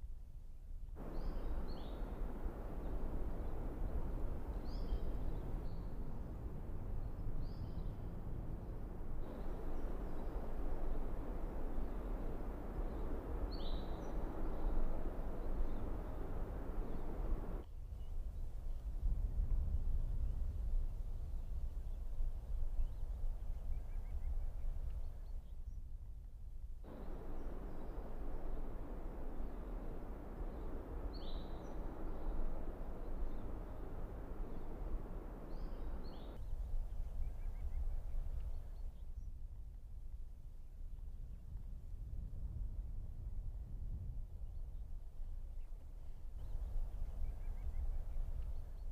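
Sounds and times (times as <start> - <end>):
low outdoor background noise: 0.0 - 48.9
bird chirp: 1.0 - 6.0, 9.2 - 17.6, 26.9 - 36.4
even hiss: 1.0 - 7.4, 8.6 - 17.6, 26.9 - 36.4
low rumble: 26.9 - 36.4.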